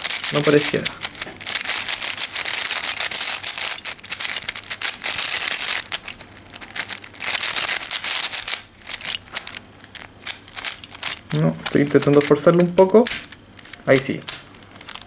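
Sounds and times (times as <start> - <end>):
speed cube layers clicking: 0.0 - 6.0, 7.3 - 9.0.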